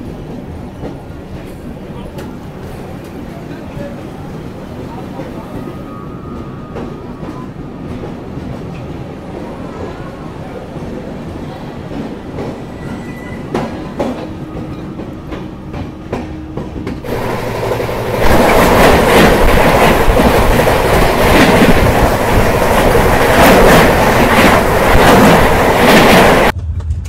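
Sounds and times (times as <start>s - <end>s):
train rushing rattle: 10.7s - 27.0s
train wheels clicking over rail joints: 13.5s - 27.0s.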